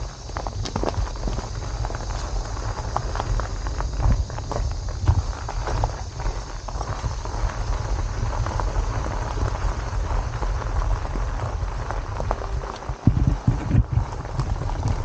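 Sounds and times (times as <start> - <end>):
bicycle tyres crunching gravel: 0.0 - 15.0
heavy bike bumps: 0.0 - 15.0
wind rumbling on microphone: 0.0 - 15.0.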